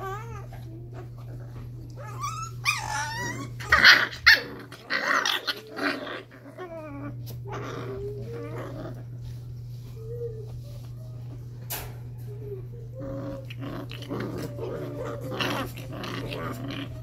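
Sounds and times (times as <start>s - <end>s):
puppies yipping and growling: 0.0s - 17.0s.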